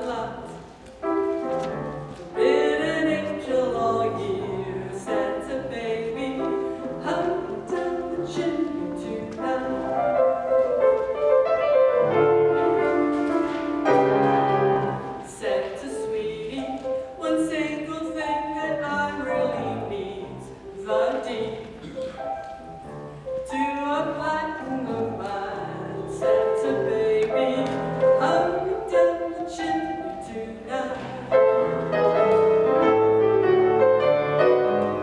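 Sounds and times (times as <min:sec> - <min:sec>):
woman singing into microphone: 0:00.0 - 0:00.7, 0:02.4 - 0:10.3, 0:15.1 - 0:22.0, 0:23.4 - 0:31.8
piano accompaniment: 0:00.0 - 0:35.0.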